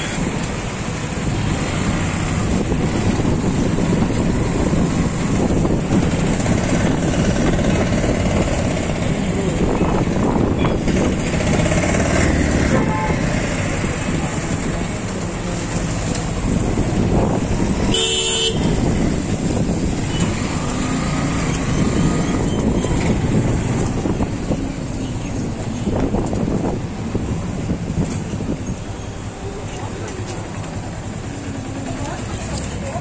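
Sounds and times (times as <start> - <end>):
motorbike engine and road noise: 0.0 - 33.0
vehicle horn toot: 12.7 - 13.3, 17.9 - 18.8.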